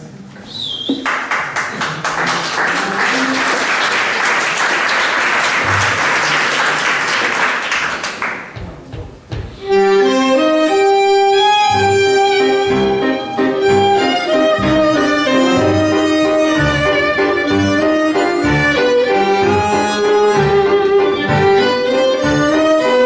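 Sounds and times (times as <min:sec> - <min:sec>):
crowd applause: 0:01.0 - 0:08.6
tango ensemble playing a waltz: 0:02.7 - 0:03.8, 0:05.5 - 0:06.5, 0:09.6 - 0:23.0.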